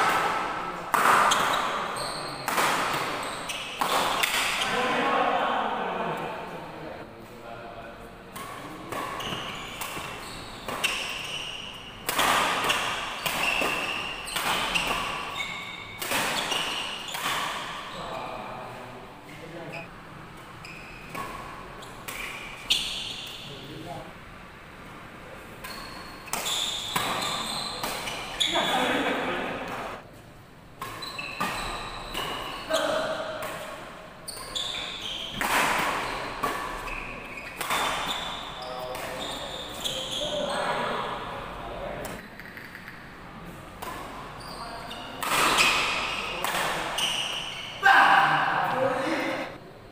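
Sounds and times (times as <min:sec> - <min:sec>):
racket hitting shuttlecock: 0:00.0 - 0:04.7, 0:08.3 - 0:17.9, 0:26.2 - 0:28.7, 0:30.8 - 0:39.5, 0:45.0 - 0:47.7
shoes squeaking on court: 0:01.2 - 0:04.7, 0:08.4 - 0:18.2, 0:20.6 - 0:23.5, 0:25.6 - 0:28.9, 0:30.8 - 0:33.3, 0:34.2 - 0:41.2, 0:43.8 - 0:47.8.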